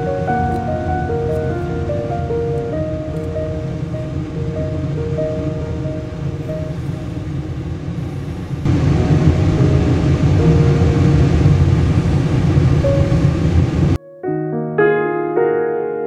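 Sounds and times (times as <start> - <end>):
dense rumbling music with held tones: 0.0 - 14.0
piano piece: 0.0 - 16.0.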